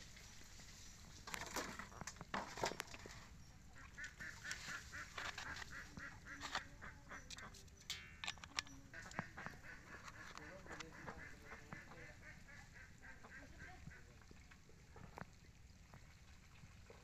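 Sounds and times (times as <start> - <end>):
waterfowl honking: 3.7 - 14.2.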